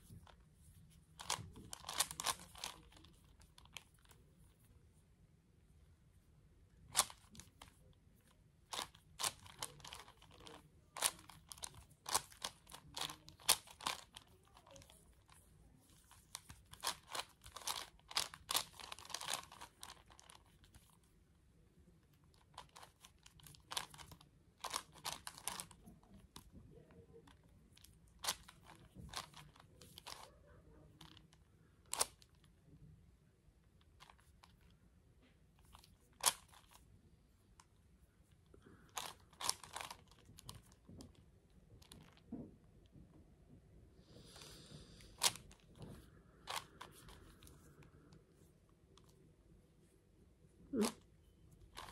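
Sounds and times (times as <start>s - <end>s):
puzzle cube layers clicking: 1.2s - 4.1s, 16.0s - 20.5s.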